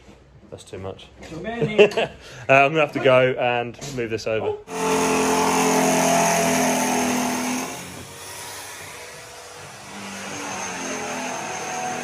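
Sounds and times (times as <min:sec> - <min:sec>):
drill motor drilling metal: 0:04.7 - 0:12.0.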